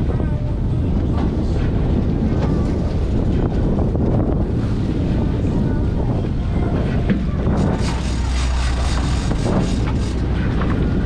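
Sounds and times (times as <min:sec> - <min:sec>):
wind buffeting microphone: 0:00.0 - 0:11.0
water splashing against boat hull: 0:06.8 - 0:11.0.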